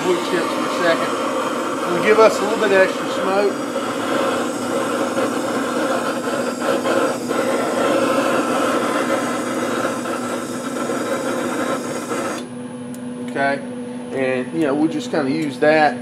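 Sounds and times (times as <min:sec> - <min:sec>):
propane torch hissing: 0:00.0 - 0:12.5
steady hum: 0:00.0 - 0:16.0.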